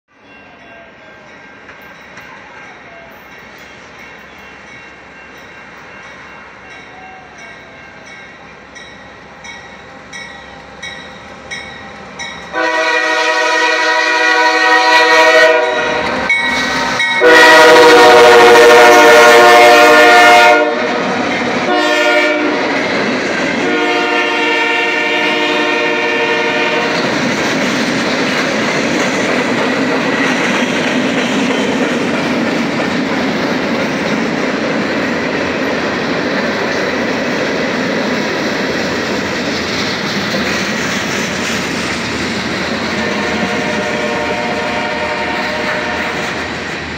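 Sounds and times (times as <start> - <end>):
rhythmic train clicking: 0.2 - 46.9
locomotive air horn blasts: 12.5 - 21.0, 21.7 - 22.8, 23.6 - 27.0, 43.0 - 46.4.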